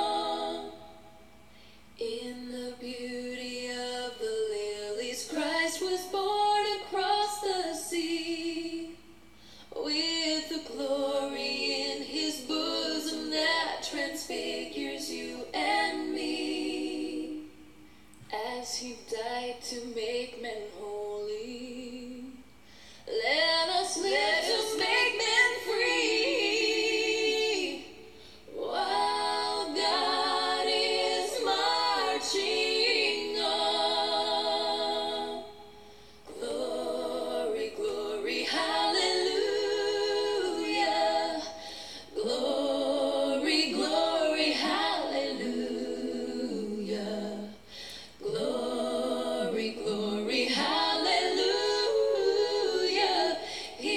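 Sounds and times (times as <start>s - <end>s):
woman singing unaccompanied: 2.0s - 9.0s.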